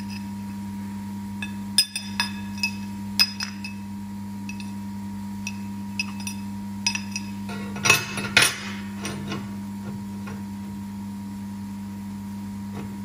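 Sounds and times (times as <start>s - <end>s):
steady low hum: 0.0s - 13.0s
steel strips clinking and ringing: 1.4s - 3.9s, 4.5s - 4.8s, 5.5s - 7.4s.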